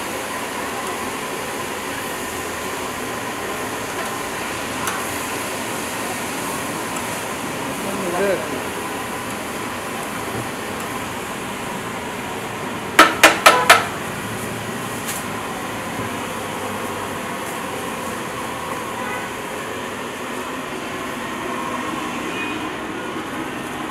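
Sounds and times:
spatula clanking on frying pan: 13.0s - 14.0s.

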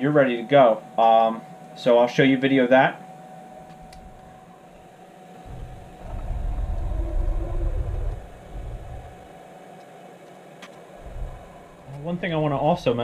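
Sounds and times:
faint steady hum: 0.0s - 13.0s
mill table drive rumbling: 3.5s - 13.0s.

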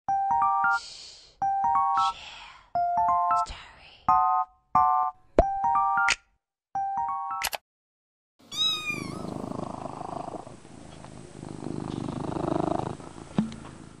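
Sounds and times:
cat meowing: 8.5s - 9.3s
cat purring: 8.8s - 14.0s.

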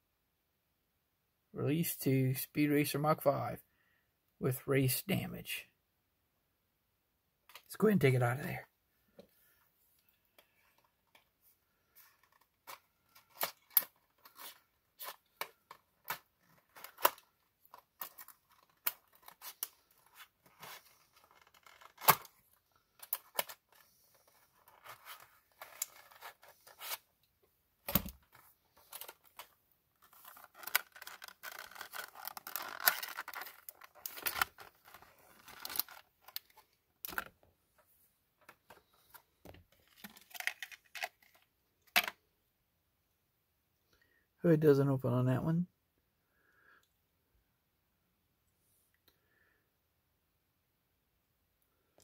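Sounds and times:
plastic crinkling and tearing: 12.2s - 22.4s, 28.0s - 37.3s
packaging being cut: 30.2s - 36.0s.

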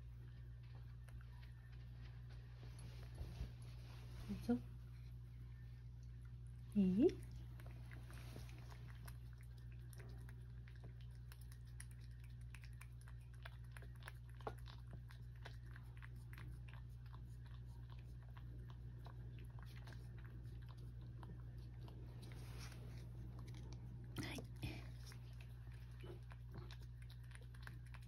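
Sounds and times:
cat licking: 6.0s - 28.0s.

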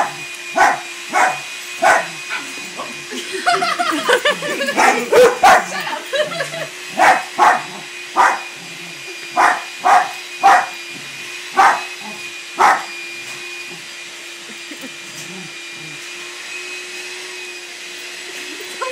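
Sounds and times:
dog barking: 0.0s - 2.5s, 4.8s - 5.8s, 7.0s - 8.4s, 9.4s - 10.8s, 11.6s - 12.9s.

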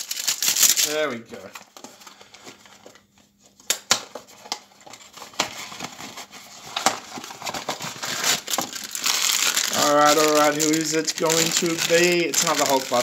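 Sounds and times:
foil bag crinkling: 0.0s - 2.6s, 5.7s - 13.0s.

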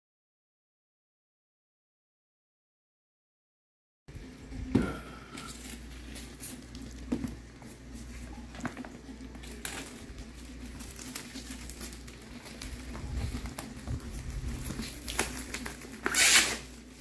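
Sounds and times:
plastic wrap crinkling and tearing: 5.3s - 17.0s.

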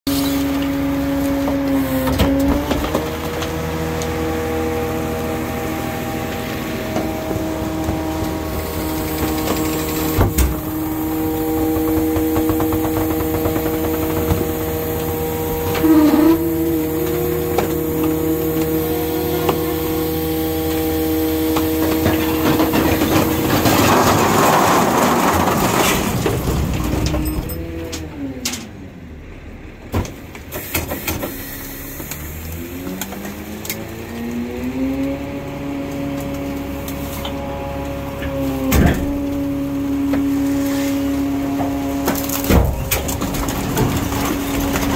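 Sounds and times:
hydraulic pump whine: 0.1s - 28.5s, 30.5s - 44.9s
trash and bottles crunching: 0.2s - 28.0s, 40.1s - 44.9s.

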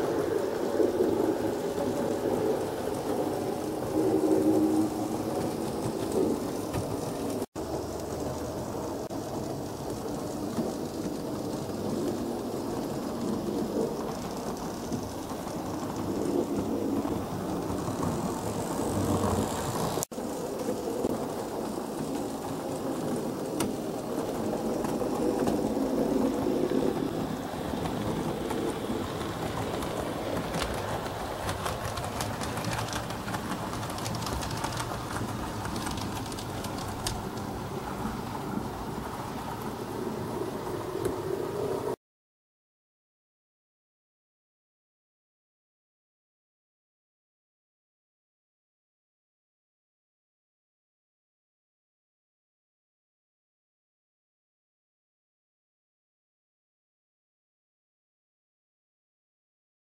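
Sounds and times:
model trains rolling on track: 0.0s - 42.0s.

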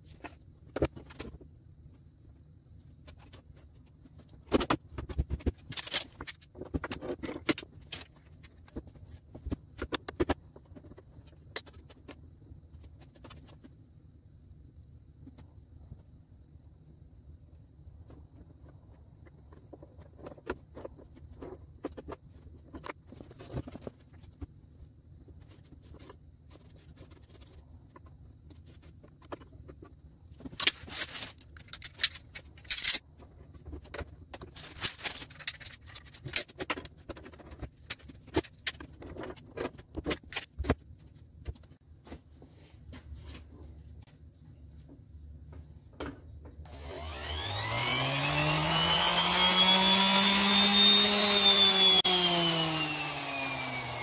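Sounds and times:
metal clamps clicking and knocking: 31.6s - 33.1s.

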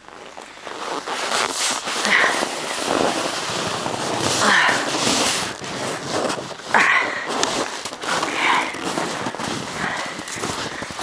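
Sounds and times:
footsteps crunching in snow: 0.0s - 11.0s.

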